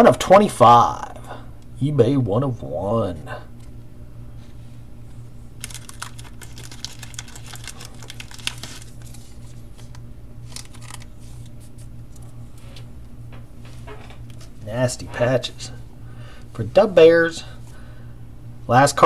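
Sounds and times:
steady low hum: 0.0 - 19.0
trading cards clicking and rustling: 5.6 - 12.3.

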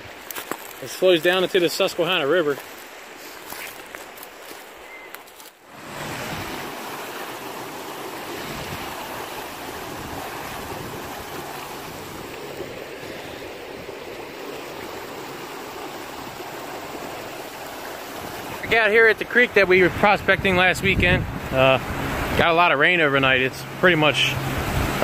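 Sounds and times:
fast water rushing: 0.0 - 25.0.

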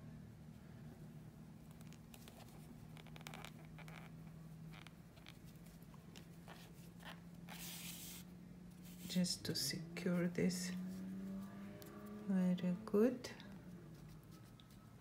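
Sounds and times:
yarn scratching and rustling: 1.6 - 9.3.

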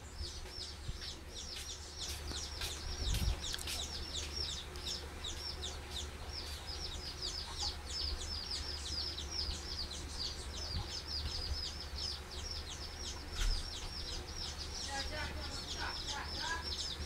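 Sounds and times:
small bird chirping: 0.0 - 17.0.

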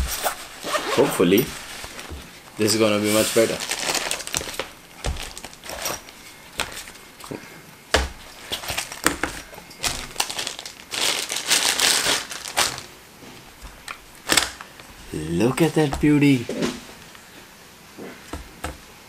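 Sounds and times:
plastic bag crinkling: 0.0 - 7.1, 8.3 - 14.9.

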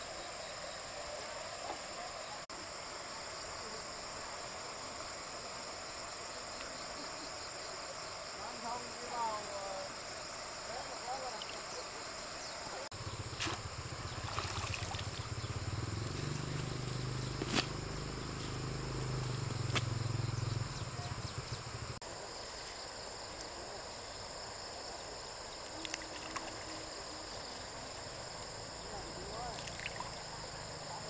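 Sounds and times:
insects calling: 0.0 - 31.0.

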